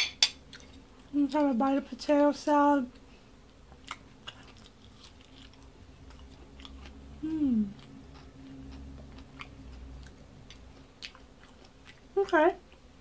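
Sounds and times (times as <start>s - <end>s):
person chewing: 3.7s - 12.9s.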